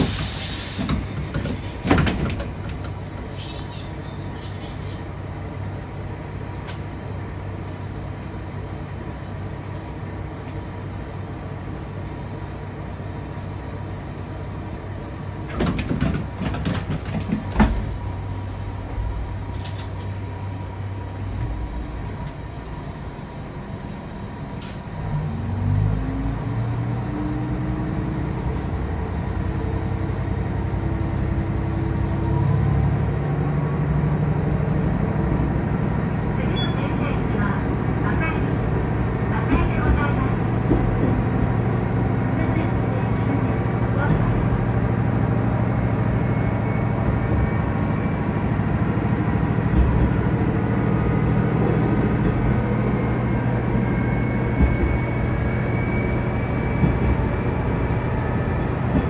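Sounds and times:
diesel railcar engine: 0.0 - 59.0
clatter of knocks: 15.5 - 17.9.

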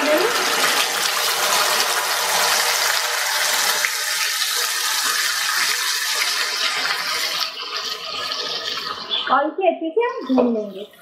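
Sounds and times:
paste sizzling in hot oil: 0.0 - 9.3.

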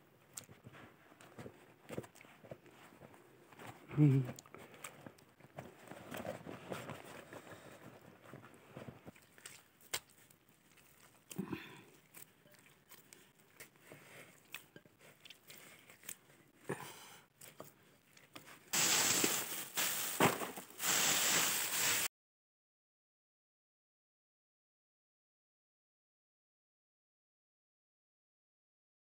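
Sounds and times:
hands kneading soft butter: 0.1 - 21.9
dry bark crackling rustle: 18.8 - 22.1.

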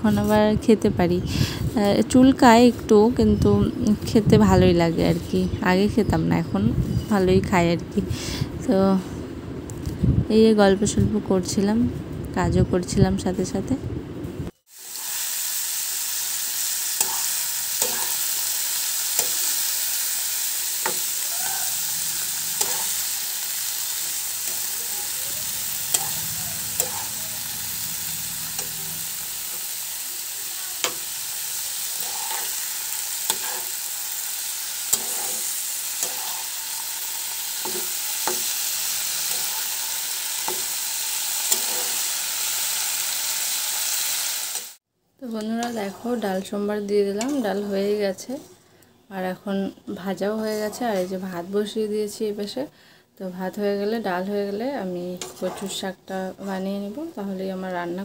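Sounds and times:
vegetables sizzling in oil: 14.7 - 48.4, 53.5 - 58.0
metal spatula scraping pan: 17.0 - 20.0, 20.7 - 29.8, 30.8 - 39.8, 41.4 - 42.1, 55.2 - 55.9.

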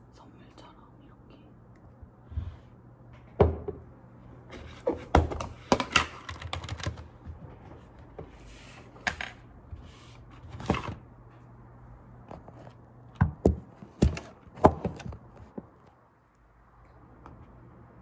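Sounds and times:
keyboard and mouse clicks: 6.2 - 7.1.

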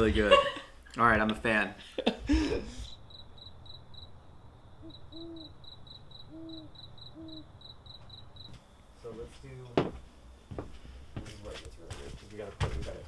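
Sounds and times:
crickets chirping: 1.8 - 13.0
owl hooting: 2.8 - 8.6.

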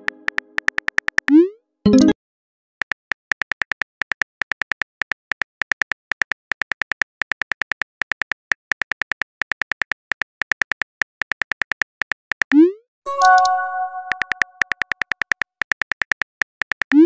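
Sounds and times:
phone keyboard clicks: 13.2 - 17.0.

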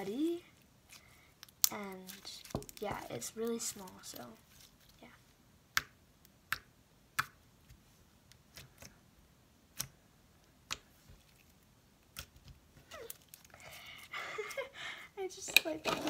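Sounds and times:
slime squishing: 0.8 - 5.1.

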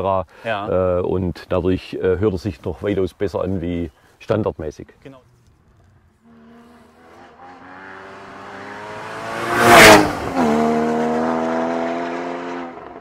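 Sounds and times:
sports car accelerating past: 6.2 - 13.0.

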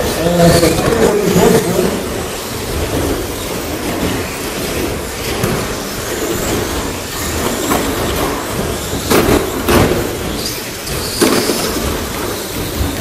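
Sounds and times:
trucks knocking into boards: 2.8 - 13.0.

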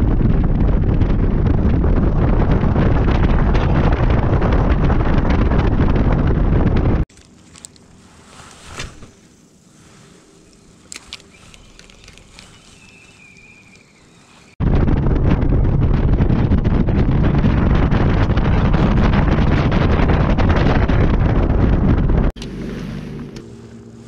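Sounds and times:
boat running fast: 0.0 - 7.0, 12.2 - 24.0
wind buffeting microphone: 0.0 - 7.1, 10.6 - 24.0.

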